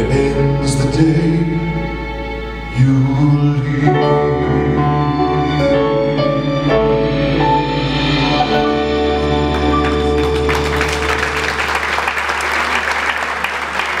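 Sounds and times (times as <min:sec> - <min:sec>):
piano and bass chord ringing: 0:00.0 - 0:12.0
audience applause: 0:09.2 - 0:14.0.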